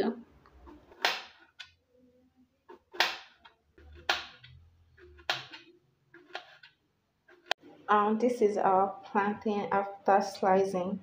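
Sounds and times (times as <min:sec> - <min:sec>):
knife slicing plantain: 0:00.6 - 0:01.6, 0:02.7 - 0:06.7
blade tapping plastic board: 0:02.9 - 0:07.6.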